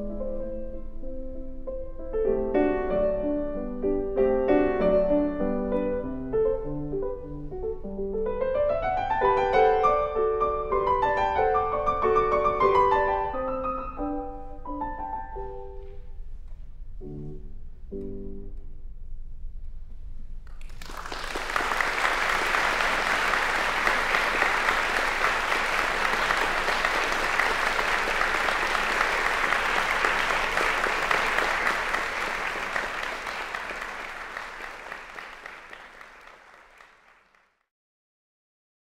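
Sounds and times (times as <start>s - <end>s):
audience applauding: 20.5s - 37.6s.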